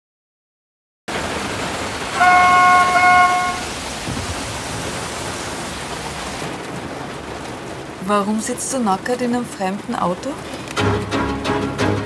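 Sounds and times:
steady rain: 0:01.1 - 0:12.0
car horn: 0:02.1 - 0:03.8.

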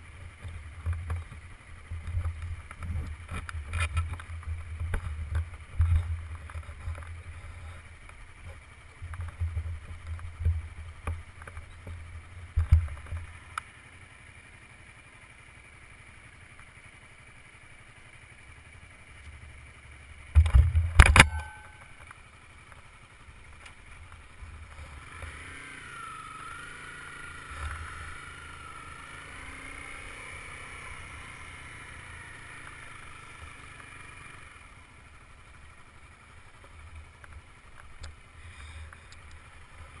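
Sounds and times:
wavering high whine: 0:20.4 - 0:22.5.

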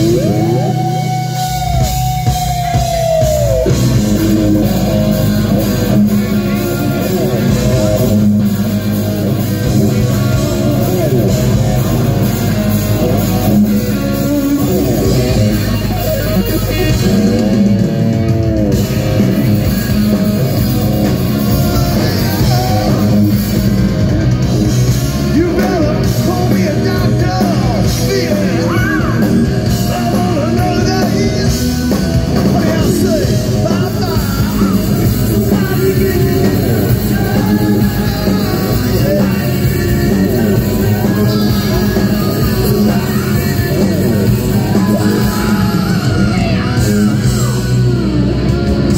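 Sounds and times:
bass guitar: 0:00.0 - 0:48.9
drums: 0:00.0 - 0:48.9
electric guitar: 0:00.0 - 0:48.9
lead singer's vocals: 0:25.3 - 0:48.2.

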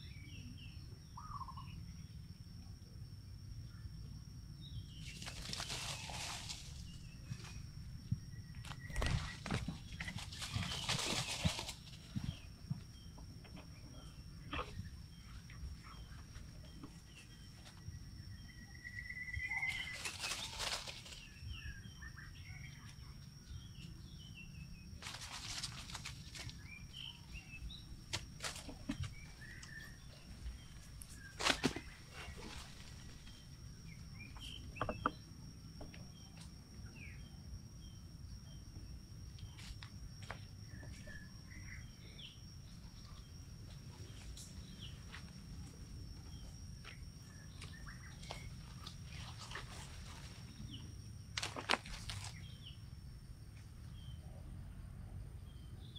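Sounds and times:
bird chirps: 0:00.0 - 0:02.2, 0:12.2 - 0:25.0, 0:33.2 - 0:35.4
rustling in dry leaves: 0:05.0 - 0:07.6, 0:08.6 - 0:12.5, 0:19.4 - 0:21.6, 0:25.0 - 0:33.6, 0:47.6 - 0:50.8, 0:51.4 - 0:52.5.

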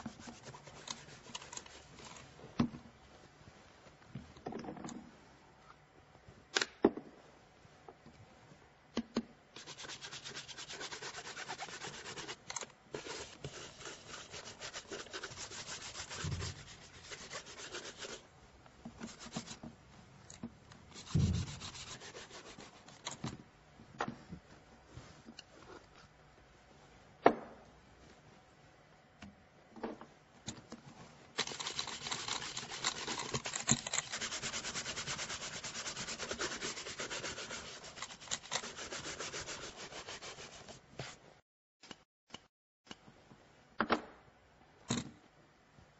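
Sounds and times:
brushing leather shoe: 0:09.6 - 0:18.2, 0:20.9 - 0:22.9, 0:31.4 - 0:41.2.

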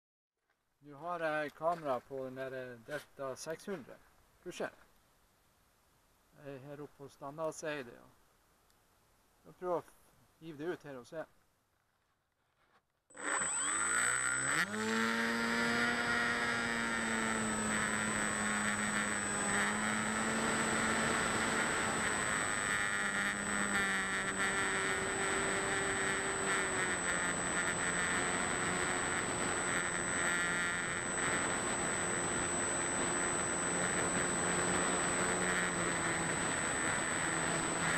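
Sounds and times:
model plane motor whine: 0:13.1 - 0:37.9
thin high whine: 0:13.1 - 0:37.9.

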